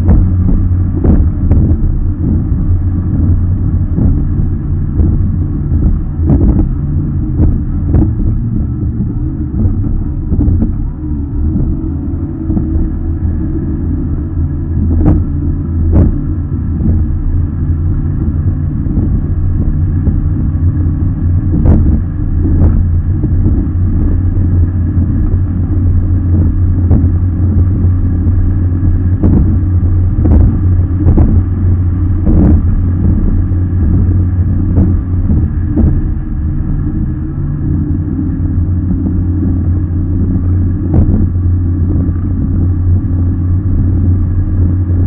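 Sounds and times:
boat engine droning: 0:00.0 - 0:45.0.

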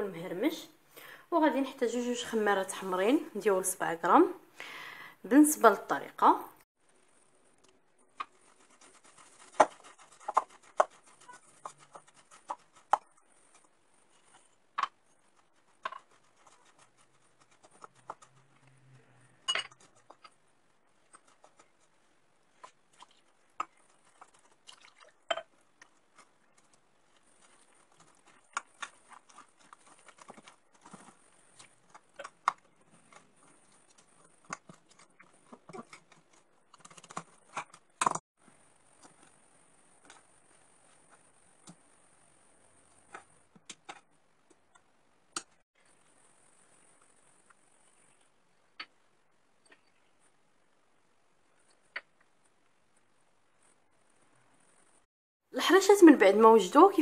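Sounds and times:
hands kneading dough: 0:08.0 - 0:18.6, 0:19.7 - 0:41.9
whisk and spoon knocking bowl: 0:08.2 - 0:13.6.

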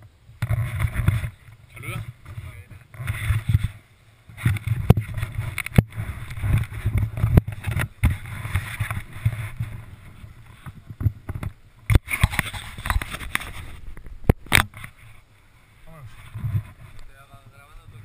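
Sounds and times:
wind rumbling on microphone: 0:00.0 - 0:18.0
knocks of camera and ski gear: 0:00.4 - 0:15.0, 0:16.2 - 0:17.0.

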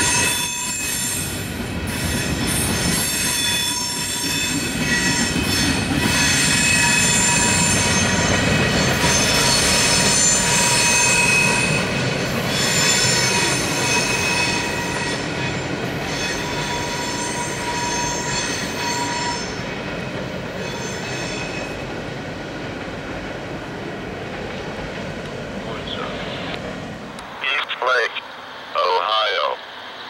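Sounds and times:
train wheels squealing on rails: 0:00.0 - 0:22.0.

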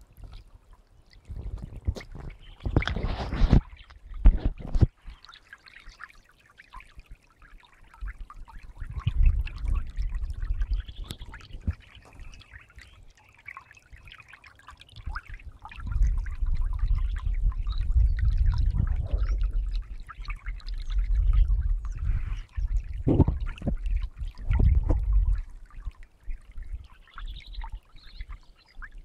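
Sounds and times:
stream running over stones: 0:00.0 - 0:29.0
low rumble: 0:16.0 - 0:20.1.

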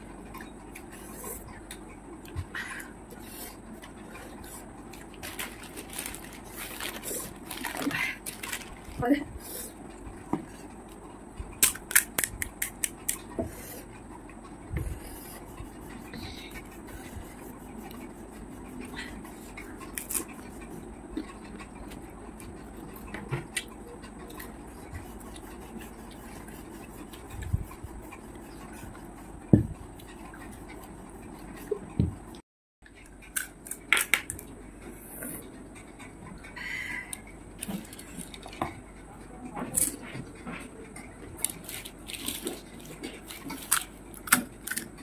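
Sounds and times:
crisp shells crunching: 0:05.2 - 0:09.0
wet chewing: 0:40.9 - 0:45.0.

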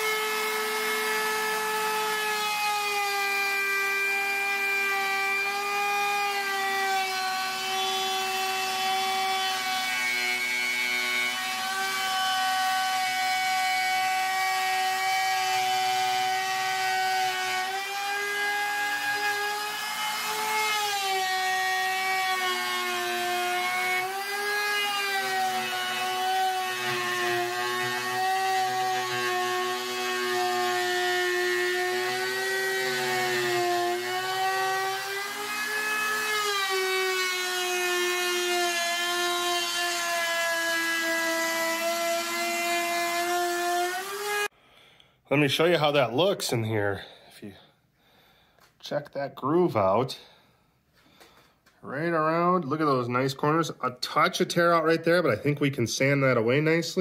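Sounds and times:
trim router cutting wood: 0:00.0 - 0:44.5.

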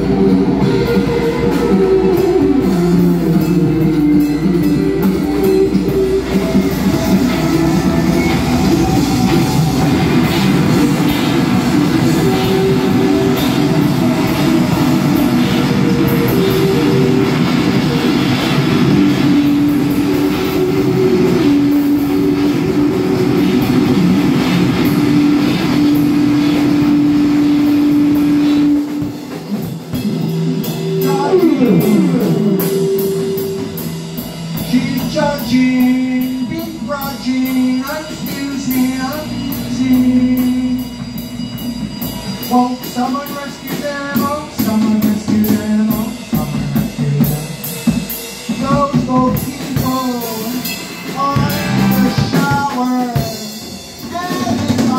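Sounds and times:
drum kit beat: 0:00.0 - 0:54.9
voice through microphone: 0:31.0 - 0:32.8, 0:51.2 - 0:54.9.

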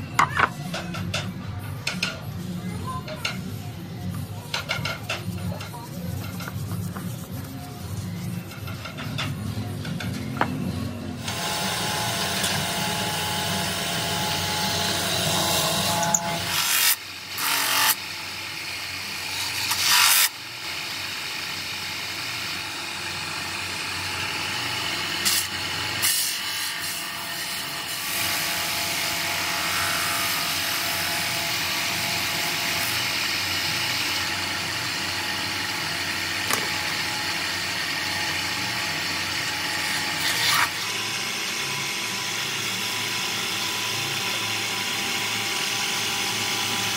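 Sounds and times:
wood rubbing on spinning lid: 0:04.5 - 0:09.4
wood lathe running: 0:11.2 - 0:46.9.

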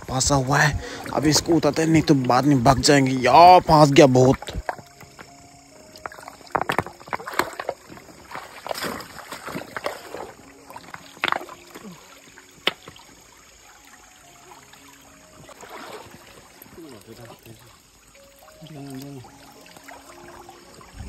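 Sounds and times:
flowing river water: 0:00.0 - 0:21.0
water splashing and sloshing: 0:00.0 - 0:21.0.

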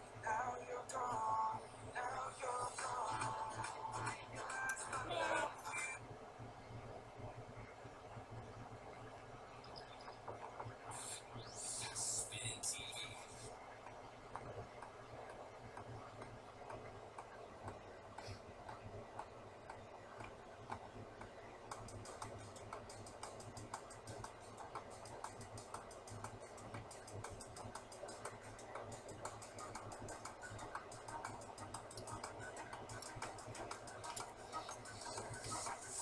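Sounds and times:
crackles and pops: 0:06.0 - 0:12.0, 0:13.5 - 0:36.0.

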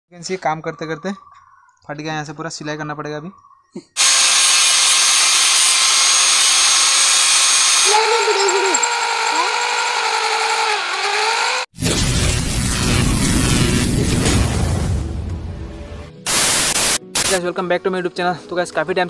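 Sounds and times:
angle grinder cutting steel: 0:04.0 - 0:11.7
electric drill whining: 0:04.0 - 0:11.7
music: 0:15.0 - 0:19.0.

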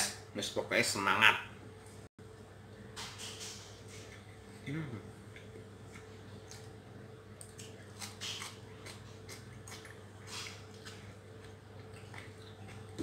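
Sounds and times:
steady low hum: 0:00.0 - 0:13.0
chewing and lip smacks: 0:07.4 - 0:13.0.

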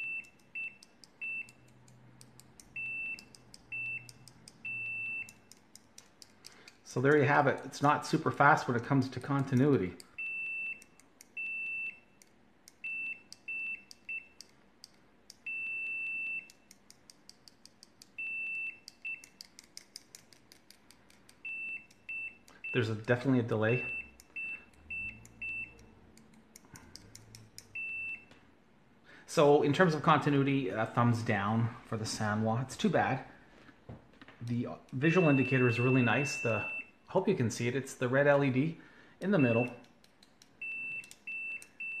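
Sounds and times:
multimeter continuity beeps: 0:00.0 - 0:01.8, 0:02.6 - 0:05.6, 0:08.6 - 0:14.5, 0:15.3 - 0:16.8, 0:18.0 - 0:19.5, 0:21.3 - 0:25.9, 0:27.7 - 0:28.3, 0:34.9 - 0:37.0, 0:39.2 - 0:39.9, 0:40.6 - 0:42.0
test probes tapping clicks: 0:00.0 - 0:28.4, 0:39.2 - 0:42.0.

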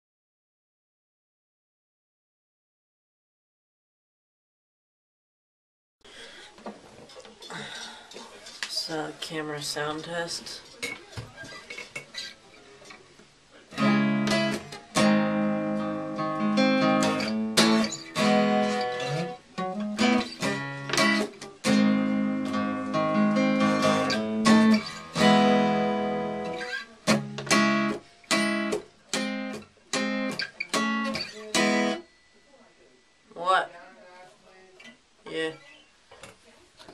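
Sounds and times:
acoustic guitar strumming chords: 0:13.7 - 0:32.1.

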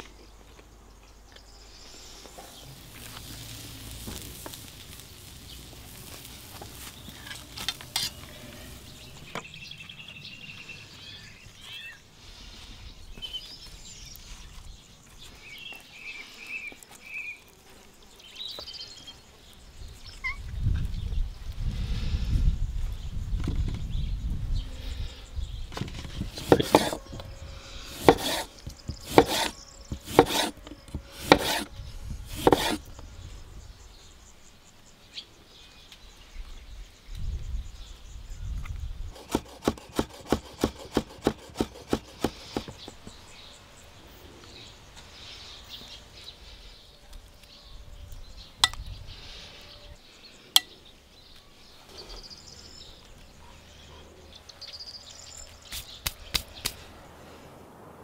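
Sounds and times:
knife chopping on wooden board: 0:26.4 - 0:27.0, 0:27.9 - 0:30.6, 0:31.2 - 0:31.7, 0:32.3 - 0:32.8, 0:39.2 - 0:42.8.

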